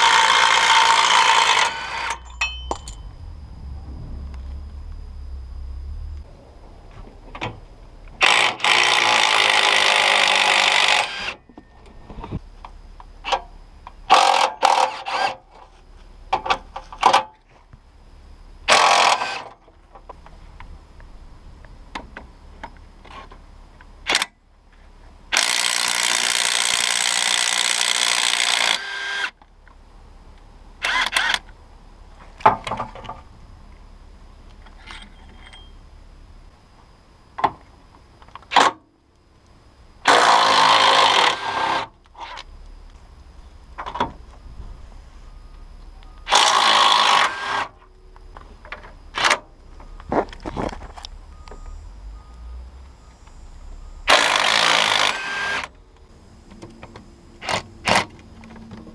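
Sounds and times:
impact wrench hammering: 0:00.0 - 0:03.1.

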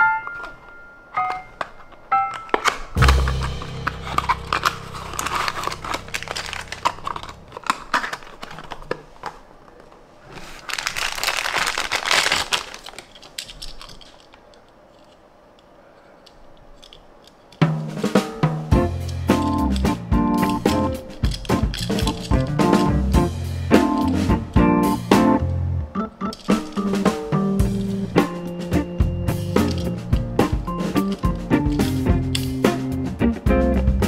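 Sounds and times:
background music: 0:00.0 - 0:07.4, 0:18.7 - 0:34.0
cardboard packaging crinkling: 0:00.2 - 0:15.3, 0:18.9 - 0:23.2.

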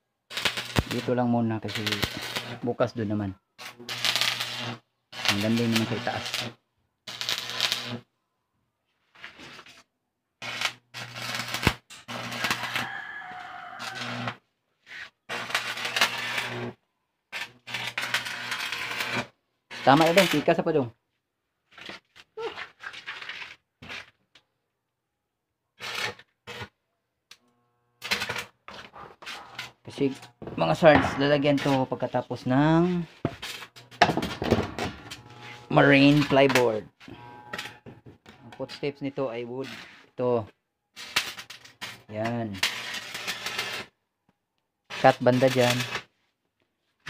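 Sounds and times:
welding arc crackling: 0:00.3 - 0:02.8, 0:03.6 - 0:08.0, 0:10.4 - 0:12.9, 0:13.8 - 0:14.4, 0:15.3 - 0:20.7, 0:28.0 - 0:38.0, 0:41.0 - 0:43.9, 0:44.9 - 0:46.1.

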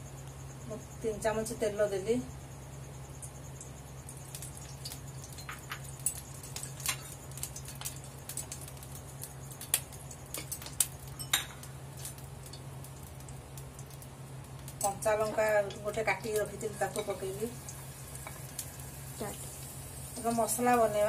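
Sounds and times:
oil heating in a frying pan: 0:00.0 - 0:21.0
steady low hum: 0:00.0 - 0:21.0
kitchenware clicks and clinks: 0:10.4 - 0:11.7.

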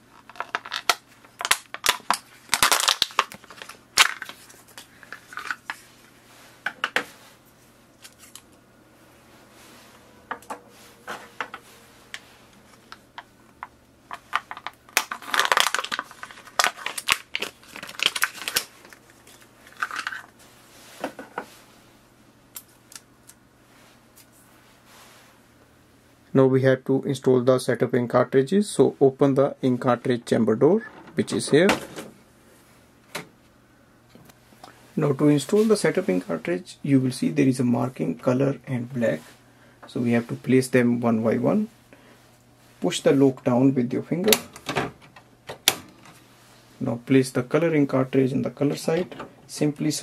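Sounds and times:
plastic packaging crinkling: 0:00.1 - 0:06.1, 0:14.1 - 0:20.4.

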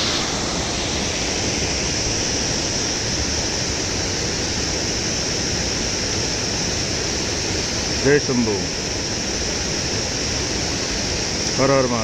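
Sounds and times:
river water rushing over weir: 0:00.0 - 0:12.0.

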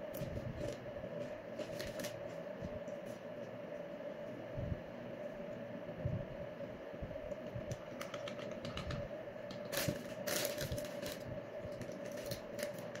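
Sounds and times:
steady hum: 0:00.0 - 0:13.0
plastic chip bag crinkling: 0:01.6 - 0:02.2, 0:09.6 - 0:13.0.

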